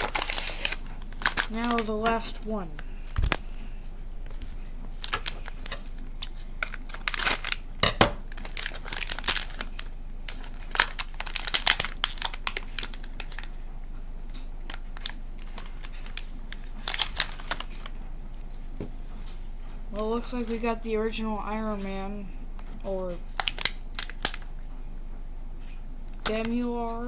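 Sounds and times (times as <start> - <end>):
foil bag crinkling and tearing: 0.0 - 2.4, 4.4 - 7.6, 8.3 - 13.6, 14.7 - 18.6, 23.3 - 24.5.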